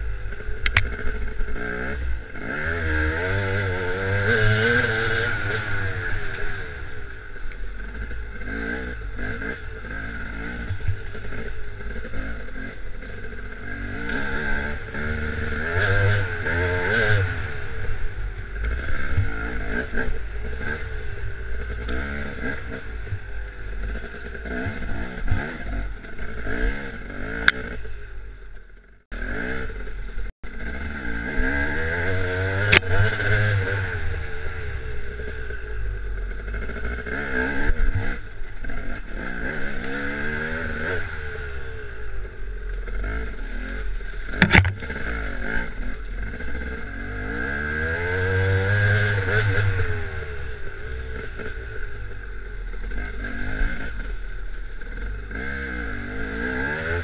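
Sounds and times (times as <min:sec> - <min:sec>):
dirt bike engine revving: 0:00.0 - 0:57.0
bike knocking over rough ground: 0:44.3 - 0:45.0.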